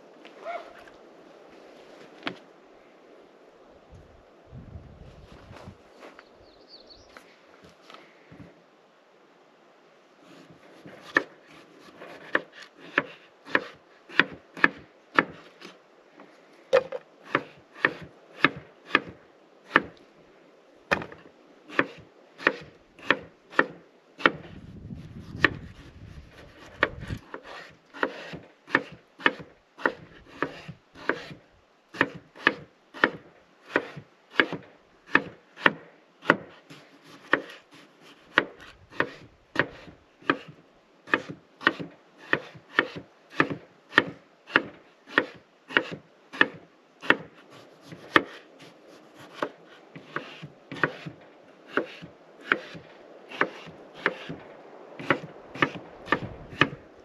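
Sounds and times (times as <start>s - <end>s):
knife chopping on wooden board: 11.9s - 15.4s, 16.8s - 20.0s, 20.9s - 24.5s, 25.3s - 31.4s, 32.0s - 54.4s, 55.0s - 56.8s.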